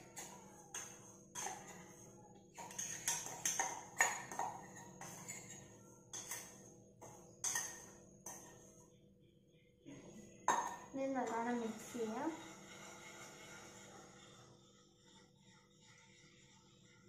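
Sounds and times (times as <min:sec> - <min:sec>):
spoon clinking against bowl: 0:00.0 - 0:08.7.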